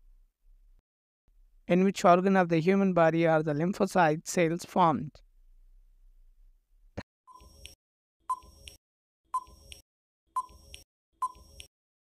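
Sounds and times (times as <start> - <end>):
timer ticks with beep-like ring: 7.3 - 8.8, 9.4 - 9.8, 10.4 - 11.7.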